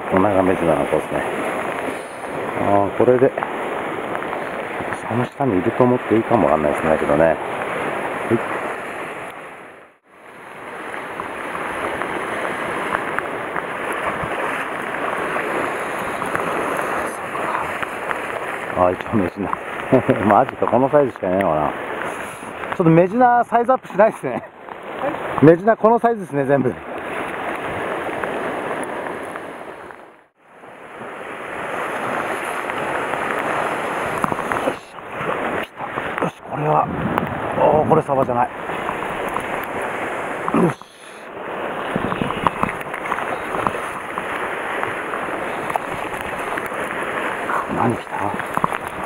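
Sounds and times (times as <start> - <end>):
surf breaking on rocks: 0.0 - 49.0.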